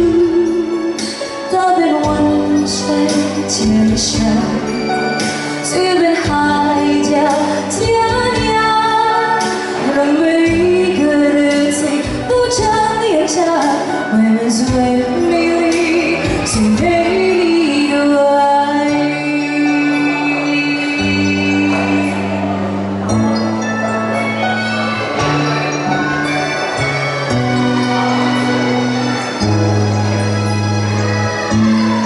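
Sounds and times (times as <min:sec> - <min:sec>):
woman singing pop ballad: 0:00.0 - 0:22.4
electronic keyboard chords: 0:00.0 - 0:32.0.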